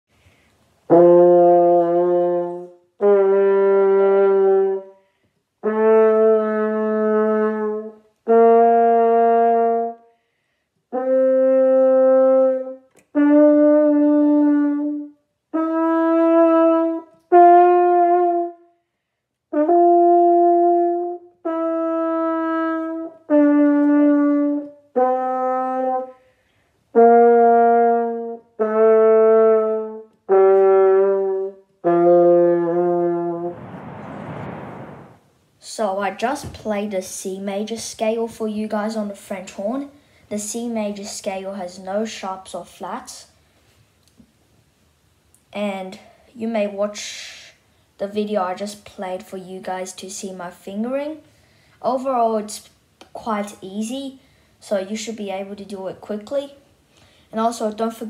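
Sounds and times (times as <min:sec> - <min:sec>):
french horn playing a scale: 0:00.9 - 0:04.9, 0:05.6 - 0:10.0, 0:10.9 - 0:18.6, 0:19.5 - 0:26.1, 0:27.0 - 0:35.1.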